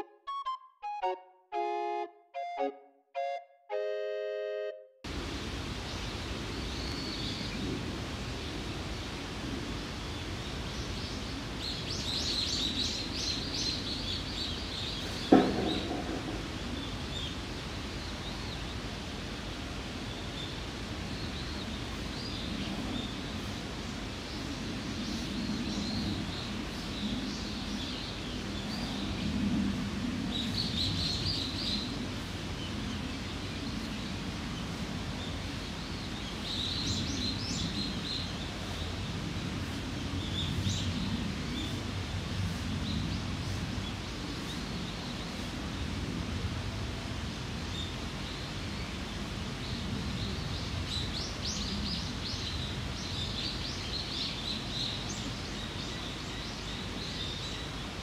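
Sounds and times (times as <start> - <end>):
steady low background noise: 0.0 - 58.0.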